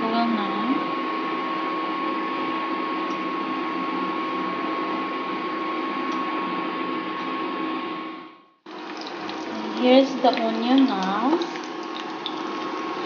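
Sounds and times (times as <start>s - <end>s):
cooling fan whirr: 0.0s - 13.0s.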